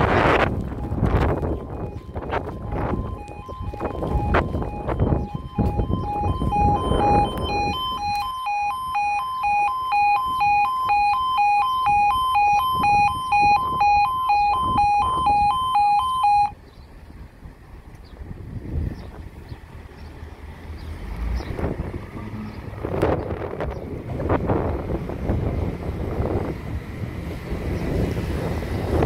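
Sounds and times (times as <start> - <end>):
low rumble of wind or traffic: 0.0 - 29.0
two-pitch level crossing alarm: 0.8 - 16.6.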